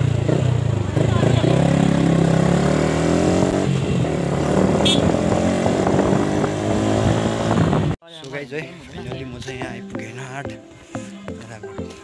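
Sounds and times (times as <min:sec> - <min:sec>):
motorcycle engine running: 0:00.0 - 0:08.0.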